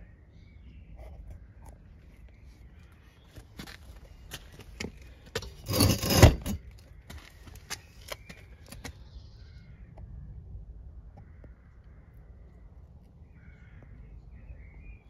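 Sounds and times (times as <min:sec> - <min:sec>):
loud scraping rush: 0:05.4 - 0:06.6.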